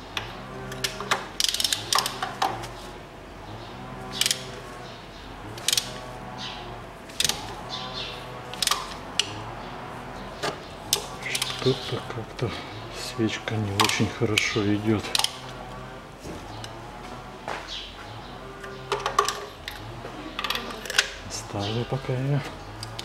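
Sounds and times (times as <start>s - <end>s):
ratchet wrench clicking: 0.7s - 2.2s, 4.2s - 4.5s.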